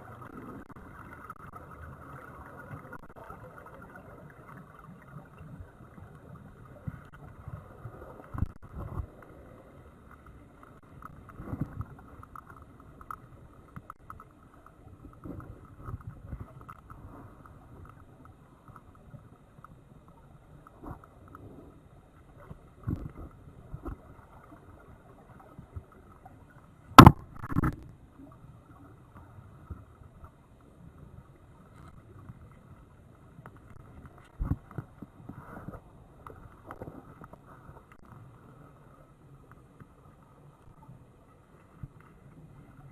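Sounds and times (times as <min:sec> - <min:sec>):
underwater rush of water: 0:00.0 - 0:42.9
dull knocks underwater: 0:26.9 - 0:27.9.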